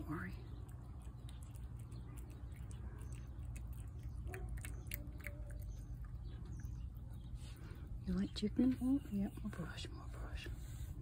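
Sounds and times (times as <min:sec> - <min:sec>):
cat chewing wet food: 0:00.3 - 0:07.5.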